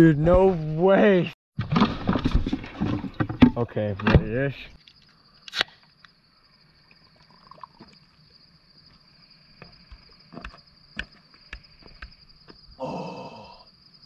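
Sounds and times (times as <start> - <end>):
night insects trilling: 3.6 - 14.0.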